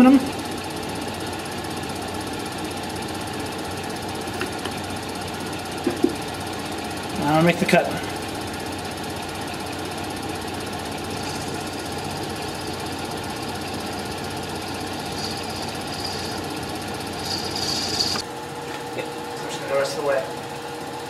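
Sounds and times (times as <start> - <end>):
lathe running hum: 0.0 - 21.0
cutting tool hiss: 11.1 - 12.9, 14.8 - 18.2.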